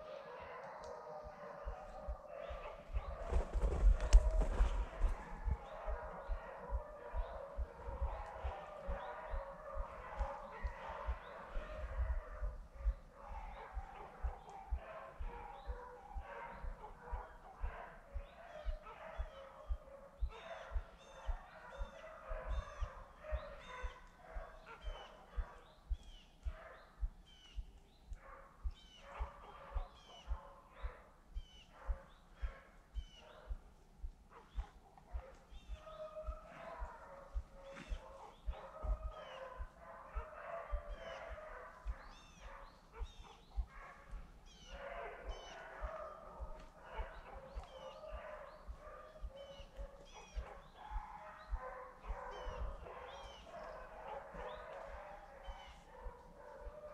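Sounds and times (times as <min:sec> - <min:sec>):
beagles baying and howling: 0:00.0 - 0:56.9
footsteps through dry brush: 0:03.1 - 0:05.6.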